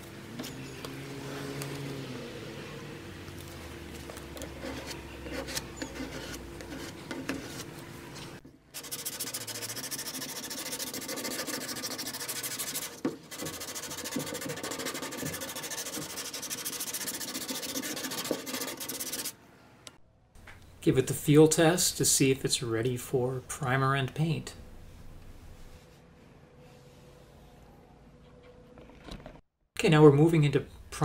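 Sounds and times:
hand sanding back and forth: 4.4 - 7.7, 8.8 - 19.3.

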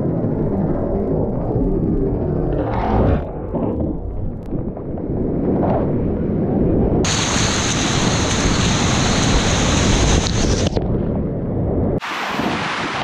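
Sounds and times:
wind buffeting microphone: 3.2 - 13.0.

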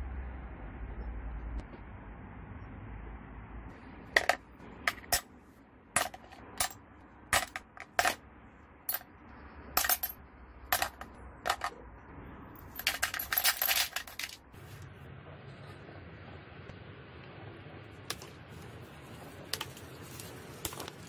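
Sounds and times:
metal parts clinking into plastic tub: 7.4 - 8.2, 10.8 - 11.8, 12.8 - 14.4.

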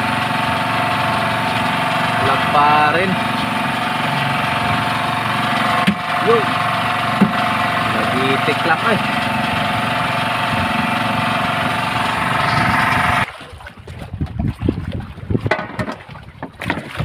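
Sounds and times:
portable generator engine running: 0.0 - 13.3
wind noise: 12.4 - 17.0
knocks and bumps of handling: 15.5 - 16.9.

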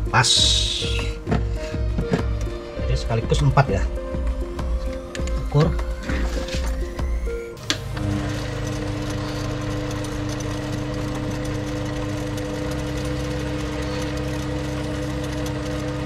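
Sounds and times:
lathe machine hum: 3.9 - 16.0.

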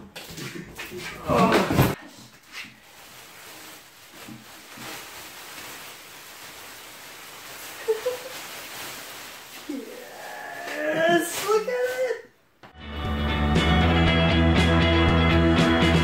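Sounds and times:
plastic sheeting crinkling: 2.2 - 12.3.

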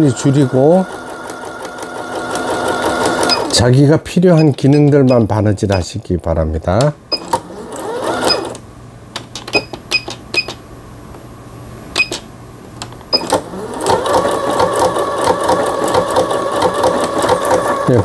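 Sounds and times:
sewing machine stitching: 0.0 - 3.6, 7.1 - 8.6, 13.1 - 18.0.

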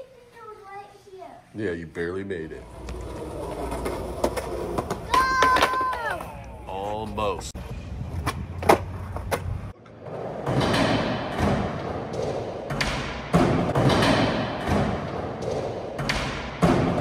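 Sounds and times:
skateboard clacking on concrete: 3.7 - 6.3.

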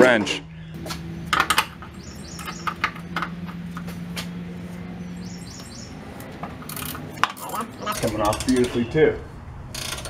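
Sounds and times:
steady low hum: 0.4 - 10.0.

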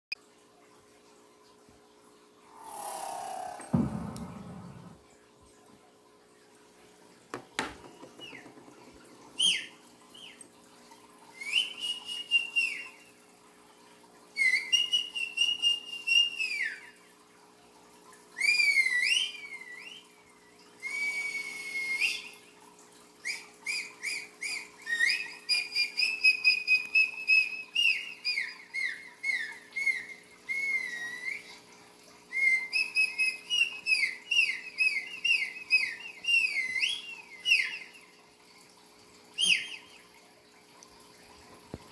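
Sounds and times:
person whistling: 2.6 - 5.0
single knock: 3.7 - 4.6.

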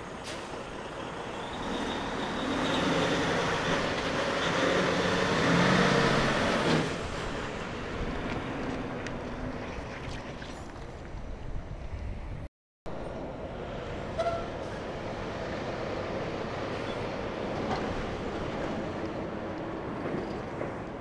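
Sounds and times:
truck engine passing: 0.0 - 9.6
trailer rolling by: 0.0 - 9.9.

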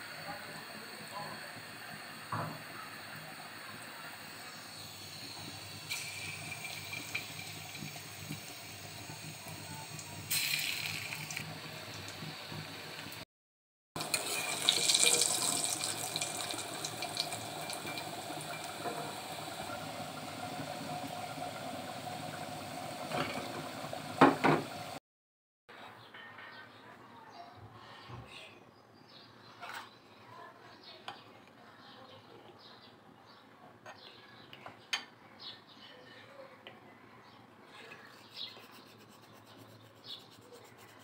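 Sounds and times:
fritters deep-frying in hot oil: 0.0 - 13.2, 14.0 - 25.0.

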